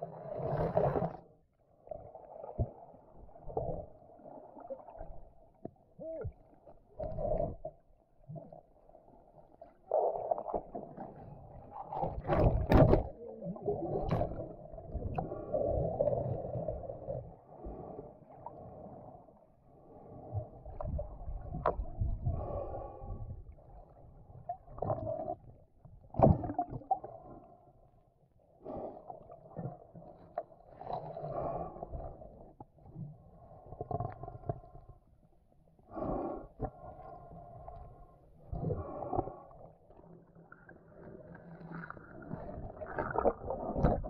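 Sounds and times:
underwater sloshing and gurgling: 0:00.0 - 0:44.0
sharp underwater clicks and knocks: 0:12.2 - 0:13.1.

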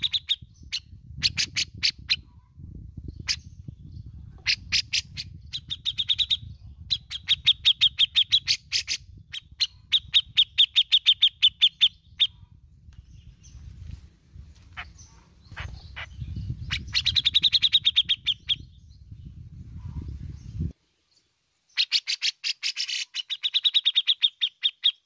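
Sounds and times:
bulbul chattering calls: 0:00.0 - 0:02.3, 0:04.4 - 0:12.4, 0:14.6 - 0:18.8, 0:21.7 - 0:25.0.

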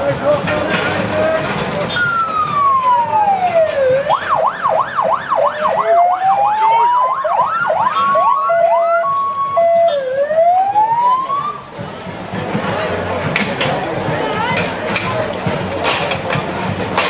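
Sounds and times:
electronic siren wailing and yelping: 0:02.0 - 0:11.6.

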